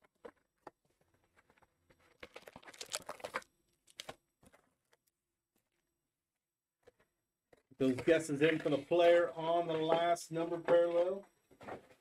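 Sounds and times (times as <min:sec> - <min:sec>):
packs crinkling and rustling: 0:00.0 - 0:04.8.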